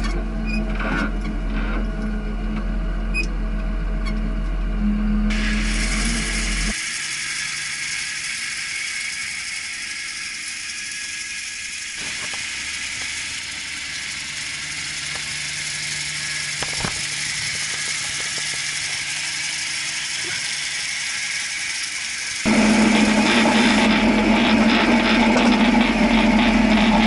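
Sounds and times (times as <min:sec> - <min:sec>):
distant tractor engine hum: 0:00.0 - 0:27.0
spreader hiss: 0:05.3 - 0:22.4.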